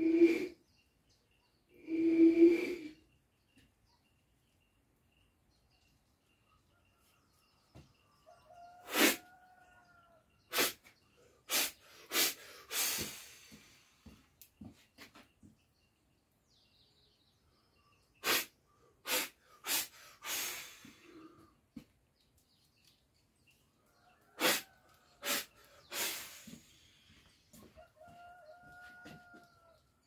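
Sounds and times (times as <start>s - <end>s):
faint rooster crowing: 6.5s - 10.4s, 23.7s - 25.6s, 27.1s - 30.0s
man spraying liquid from mouth: 8.9s - 9.2s, 10.5s - 10.9s, 11.5s - 13.6s, 18.2s - 21.0s, 24.4s - 24.6s, 25.2s - 26.7s.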